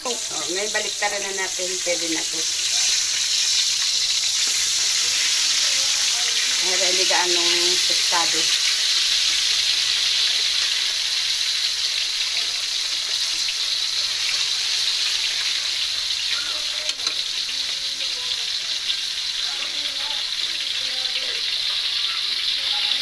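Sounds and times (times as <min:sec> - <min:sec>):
fish sizzling in hot oil: 0:00.0 - 0:23.0
metal tongs clacking on wok: 0:16.3 - 0:17.8.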